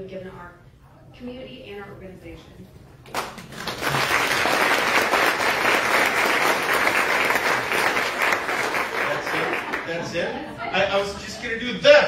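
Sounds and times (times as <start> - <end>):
audience applauding: 3.1 - 10.0.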